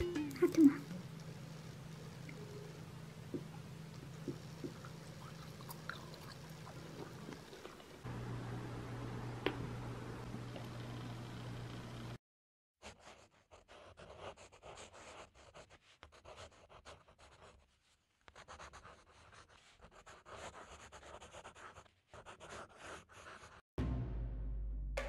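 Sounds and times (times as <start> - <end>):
pencil scratching on paper: 12.8 - 23.6.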